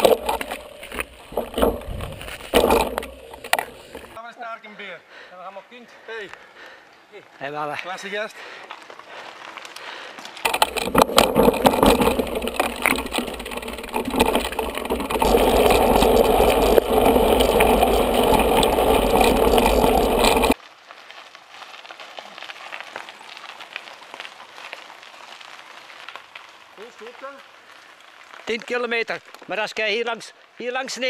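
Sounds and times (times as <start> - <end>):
bike camera rumble and rattle: 0.0 - 4.2, 8.7 - 29.6
sharp clicks from bumps: 0.0 - 4.2, 8.6 - 30.0
tyres crunching on gravel: 0.0 - 4.2, 7.2 - 31.0
faint outdoor ambience: 0.0 - 13.9.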